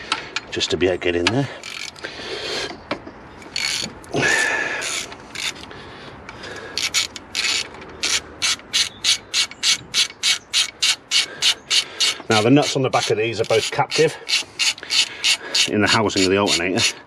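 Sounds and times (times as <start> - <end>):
socket ratchet clicking: 1.6 - 2.0, 3.4 - 4.0, 4.8 - 5.7, 6.8 - 16.9.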